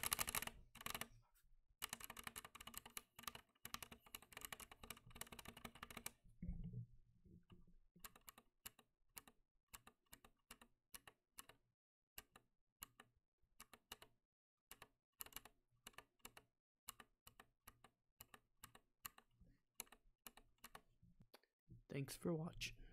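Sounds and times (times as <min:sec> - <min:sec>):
quiet keyboard typing: 0:00.0 - 0:01.2, 0:01.8 - 0:06.2, 0:08.0 - 0:11.6, 0:12.2 - 0:20.9.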